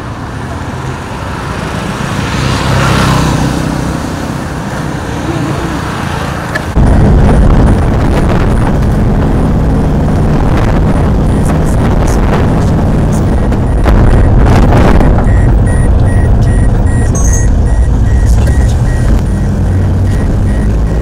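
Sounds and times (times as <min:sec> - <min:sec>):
road traffic passing: 0:00.0 - 0:21.0
car driving heard from inside: 0:02.1 - 0:21.0.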